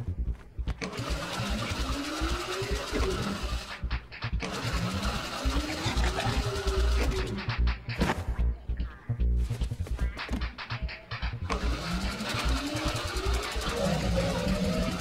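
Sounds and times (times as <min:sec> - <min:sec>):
rising mechanical rattling whir: 0:00.7 - 0:07.9, 0:10.5 - 0:15.0.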